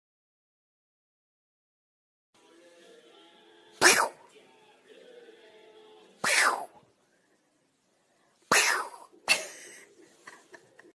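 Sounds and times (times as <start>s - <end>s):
sneeze-like bursts: 3.8s - 4.3s, 6.2s - 6.8s, 8.4s - 9.2s.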